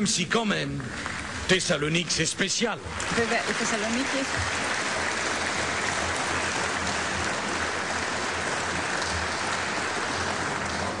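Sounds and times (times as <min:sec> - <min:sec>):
audience applauding: 0:02.9 - 0:11.0.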